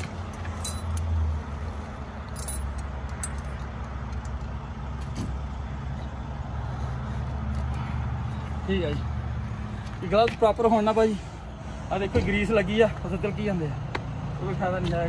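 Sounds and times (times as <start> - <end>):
chain links clinking: 0.3 - 1.1, 2.2 - 4.4.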